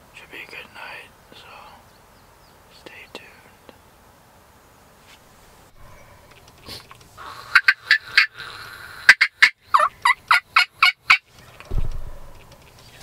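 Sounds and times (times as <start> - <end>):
wild turkey calling: 5.8 - 11.6.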